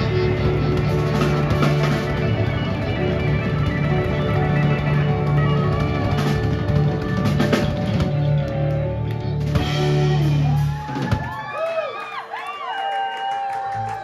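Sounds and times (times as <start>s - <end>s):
harmonica: 0.0s - 8.5s
rock band playing: 0.0s - 11.6s.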